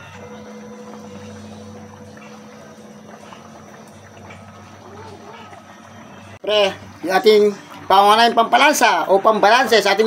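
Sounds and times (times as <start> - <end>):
steady low hum: 0.0 - 8.3
stew bubbling in a wok: 0.0 - 9.9.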